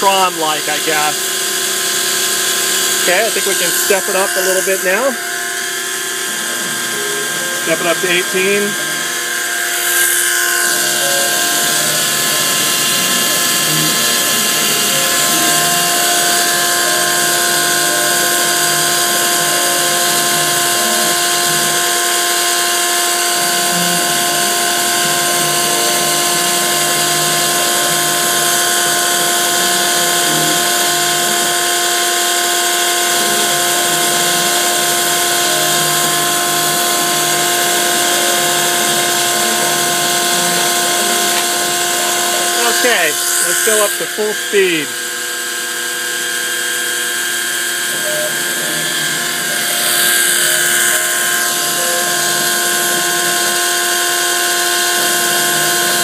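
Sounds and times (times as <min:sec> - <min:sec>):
milling spindle whine: 0:00.0 - 0:56.0
stepper motors buzzing: 0:00.0 - 0:56.0.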